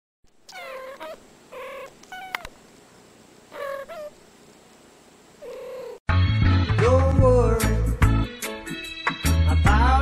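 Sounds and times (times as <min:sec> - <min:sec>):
cat meowing: 0:00.5 - 0:02.5, 0:03.5 - 0:04.1, 0:05.4 - 0:06.0.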